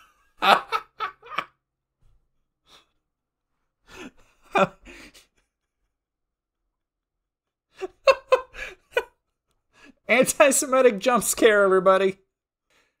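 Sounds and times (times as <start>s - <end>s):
person laughing in breathy gasps: 3.8s - 5.5s, 7.8s - 9.1s.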